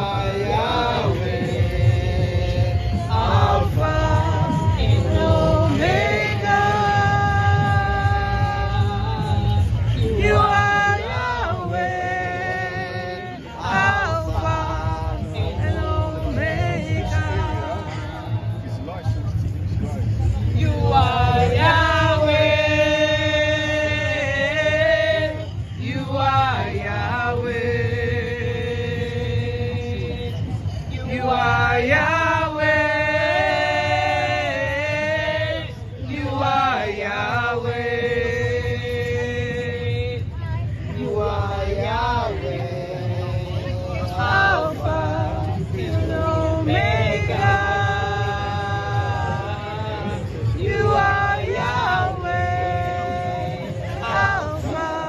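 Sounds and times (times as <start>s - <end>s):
woman singing into microphone: 0.0s - 18.5s
person singing worship song: 0.0s - 19.2s, 20.1s - 55.0s.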